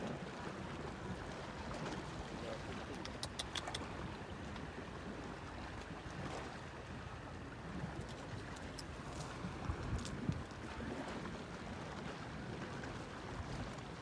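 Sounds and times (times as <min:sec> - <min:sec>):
small waves lapping against seawall: 0:00.0 - 0:14.0
sharp clicks: 0:02.9 - 0:03.9.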